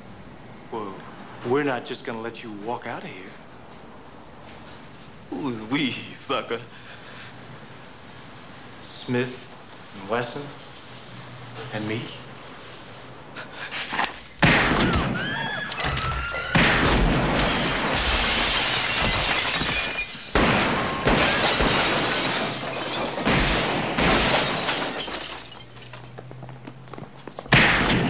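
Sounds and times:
gunshots: 14.4s - 19.0s, 20.3s - 24.9s, 27.5s - 28.0s
glass shattering: 14.4s - 26.0s.

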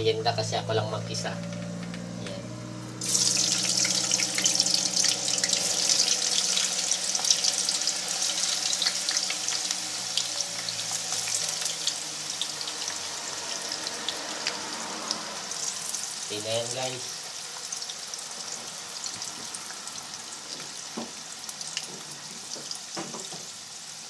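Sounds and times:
hot oil sizzling and crackling: 2.9s - 24.0s.

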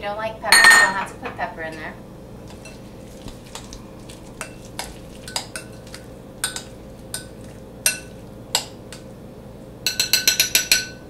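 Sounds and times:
fork clinking against glass bowl: 4.4s - 9.1s, 9.9s - 11.0s.

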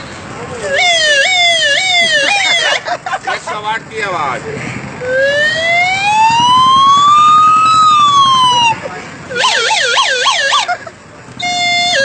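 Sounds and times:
toy whistle imitating a siren: 0.7s - 2.8s, 5.1s - 10.7s, 11.4s - 12.0s.

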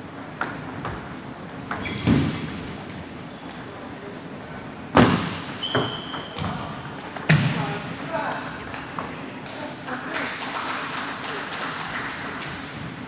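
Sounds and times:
table tennis ball hitting paddles: 0.2s - 2.7s
high squeak: 5.6s - 6.5s.

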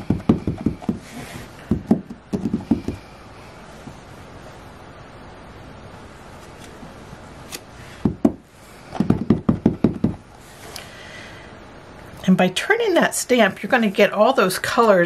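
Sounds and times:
stamp block knocking on ink pad: 1.7s - 3.0s, 9.0s - 10.2s.

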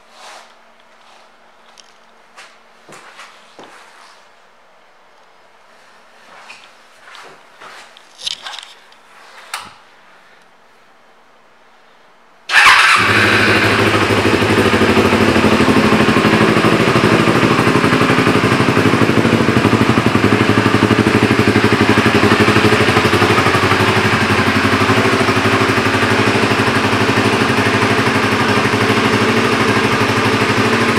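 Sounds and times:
motorcycle engine starting and idling: 12.5s - 30.9s.

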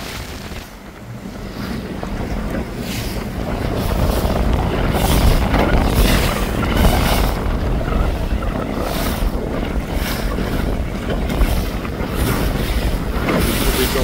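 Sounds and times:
water rushing and splashing: 0.0s - 14.0s
wind buffeting microphone: 0.0s - 14.0s.

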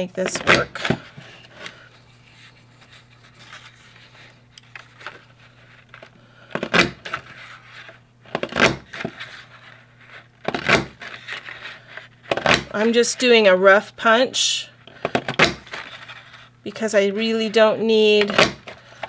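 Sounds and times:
paper rustling: 0.6s - 13.3s, 15.4s - 16.5s
paper punch clunks: 6.6s - 7.1s, 8.3s - 8.9s, 10.5s - 11.0s, 15.0s - 15.7s.

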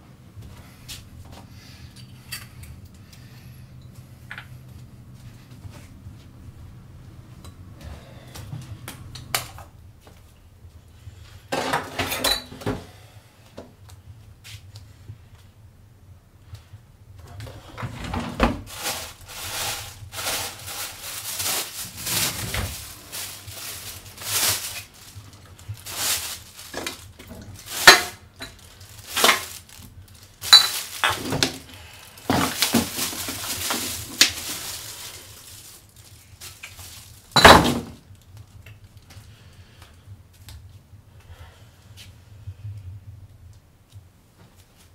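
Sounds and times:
hard objects clattering: 17.9s - 29.8s, 30.4s - 35.8s.

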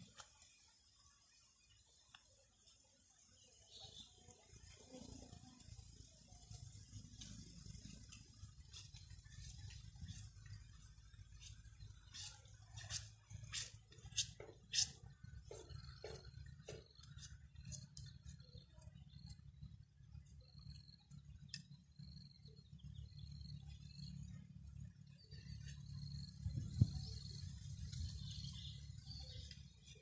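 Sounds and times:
steady low hum: 2.9s - 30.0s
knife cracking bamboo: 11.4s - 15.6s.

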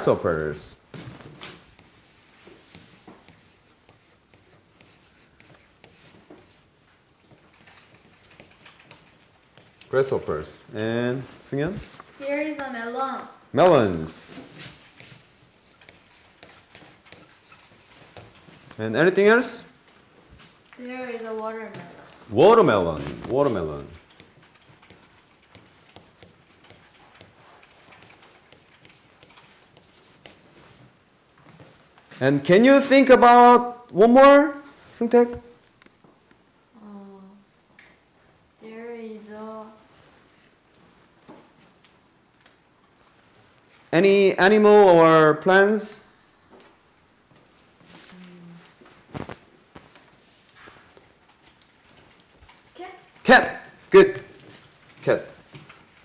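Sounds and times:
chalk scratching on blackboard: 1.7s - 6.6s, 7.6s - 10.2s, 14.6s - 18.4s, 23.5s - 30.5s, 55.8s - 56.0s.

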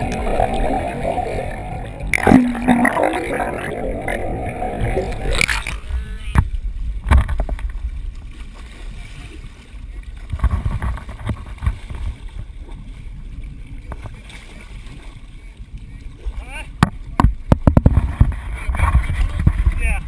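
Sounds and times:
low rumble: 0.0s - 8.4s
water splashing against boat: 0.0s - 20.0s.

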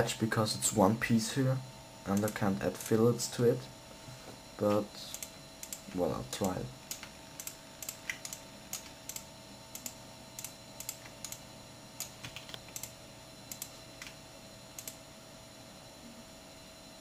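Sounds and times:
faint electrical hum: 0.0s - 17.0s
computer keys and mouse clicking: 2.1s - 2.4s, 5.1s - 11.4s, 12.0s - 14.2s, 14.8s - 15.0s.

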